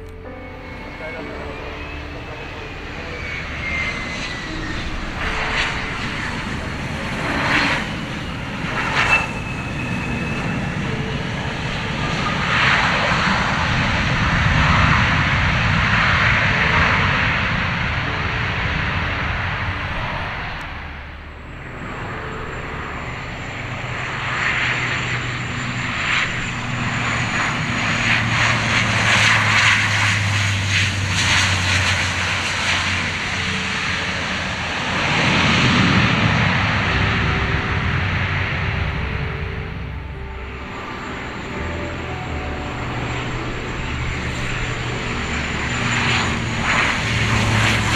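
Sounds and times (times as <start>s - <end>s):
jet engine noise: 0.0s - 47.9s
propeller drone: 0.0s - 47.9s
high whistle: 8.9s - 10.9s.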